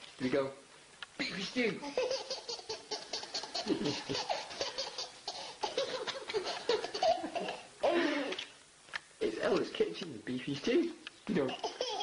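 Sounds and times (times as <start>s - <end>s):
baby giggling over loudspeakers: 1.8s - 8.4s, 11.4s - 12.0s.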